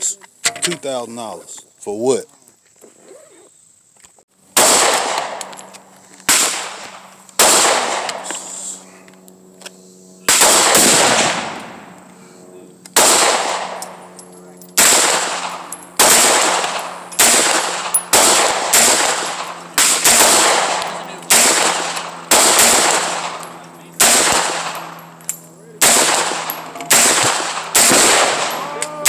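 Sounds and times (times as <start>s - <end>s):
gunshots with echo: 4.6s - 5.5s, 6.3s - 8.3s, 10.3s - 11.8s, 13.0s - 14.0s, 14.8s - 23.4s, 24.0s - 24.9s, 25.8s - 28.7s.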